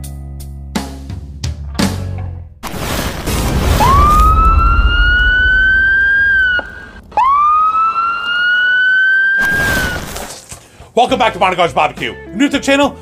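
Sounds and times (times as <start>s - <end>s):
deep rumble: 3.4s - 7.6s
siren-like wails: 3.6s - 10.0s.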